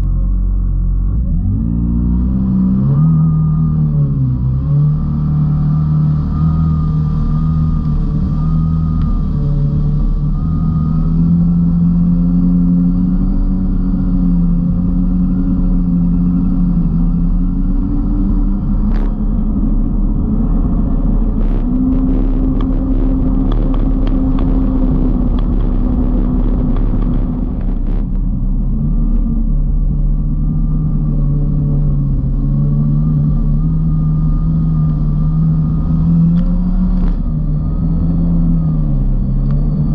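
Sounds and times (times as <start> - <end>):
jet ski engine running hard: 0.0 - 39.9.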